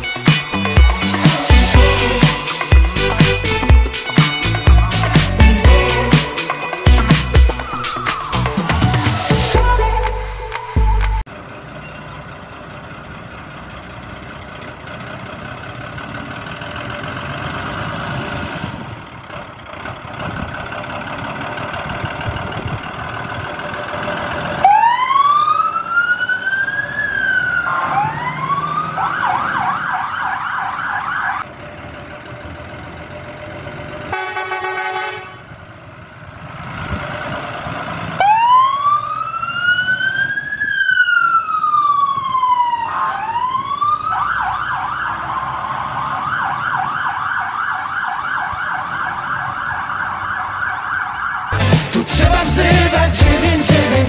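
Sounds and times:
horn blast: 0.0s - 7.7s, 34.1s - 35.4s
diesel engines running: 0.0s - 54.0s
fire engine siren: 4.9s - 10.6s, 23.3s - 31.5s, 34.1s - 35.6s, 38.0s - 51.6s.

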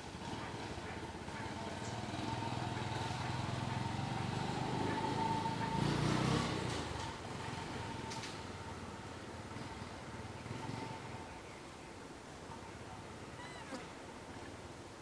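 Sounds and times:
vehicle engine passing by: 0.2s - 11.5s.

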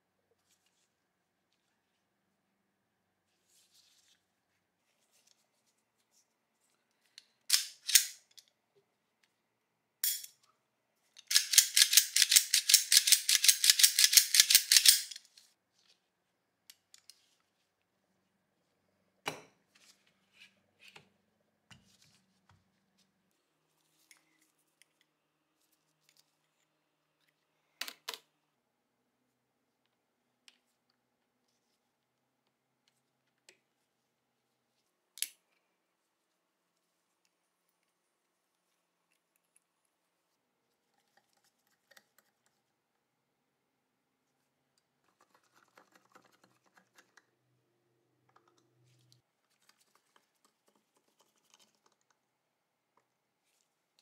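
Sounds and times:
pistol parts clicking: 7.5s - 8.5s, 10.0s - 10.4s, 11.2s - 15.4s.

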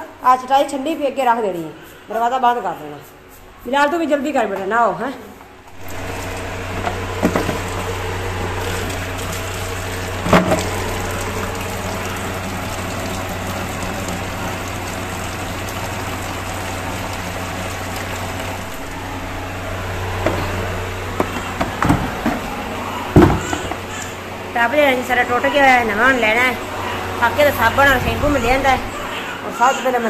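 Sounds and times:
low steady hum: 2.8s - 30.0s
hose water splashing into tub: 5.8s - 28.9s.

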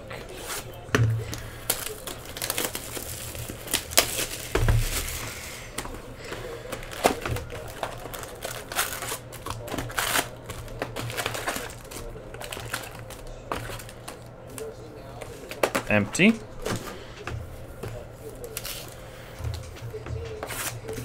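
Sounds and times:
cardboard box and packs handled: 0.0s - 21.0s
shrink-wrap crinkling and tearing: 0.2s - 5.8s, 6.5s - 14.8s, 18.4s - 19.0s.

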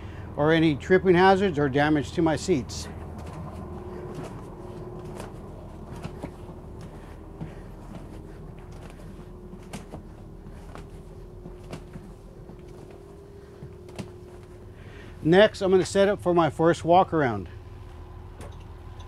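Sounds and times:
faint steady hum: 0.0s - 19.0s
footsteps on bus floor: 2.5s - 16.0s
knocks and clicks on seat frames: 3.0s - 14.5s.

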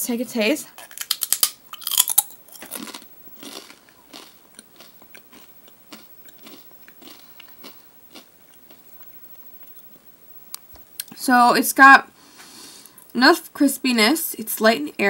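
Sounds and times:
rice cracker crunching: 0.8s - 9.9s.

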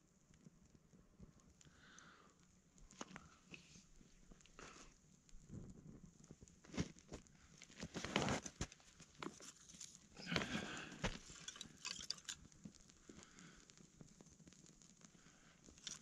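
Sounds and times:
kindling rustling and crunching: 6.7s - 12.5s.

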